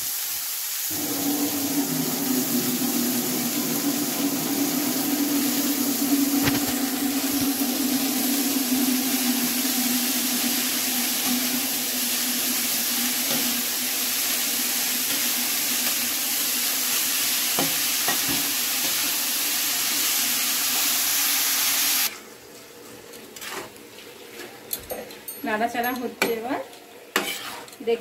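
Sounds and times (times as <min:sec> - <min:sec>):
greens sizzling in hot oil: 0:00.0 - 0:22.1
spatula scraping pan: 0:27.2 - 0:27.8.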